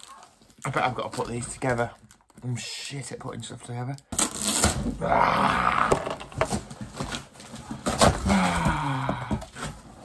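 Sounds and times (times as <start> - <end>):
packing tape ripping: 4.1 - 5.0
cardboard scraping and knocks: 5.9 - 10.0.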